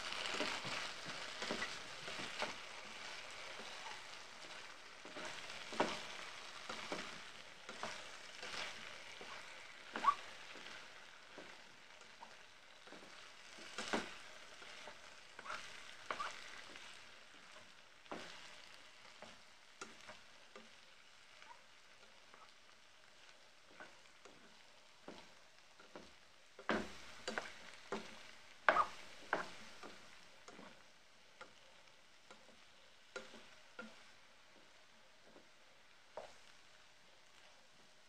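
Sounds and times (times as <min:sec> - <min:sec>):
faint frying sizzle: 0:00.0 - 0:38.0
spatula scraping pan: 0:00.1 - 0:20.8, 0:23.1 - 0:30.8.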